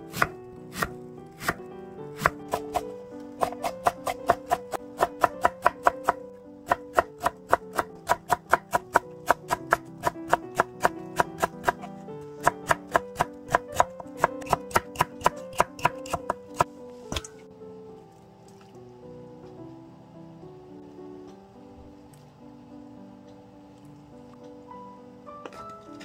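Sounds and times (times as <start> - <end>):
knife chopping on cutting board: 0.1 - 1.6, 2.2 - 17.3.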